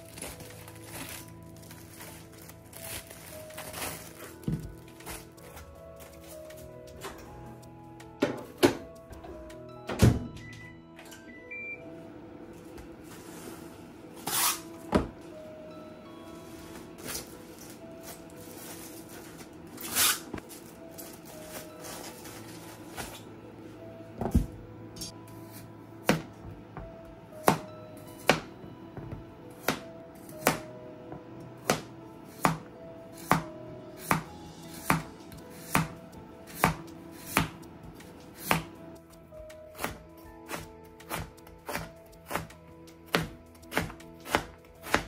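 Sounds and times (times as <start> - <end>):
plastic rustling: 0.0 - 7.0, 16.4 - 23.3
background music: 0.0 - 45.0
knife slicing carrots on board: 33.2 - 37.6, 38.4 - 38.7, 39.7 - 45.0.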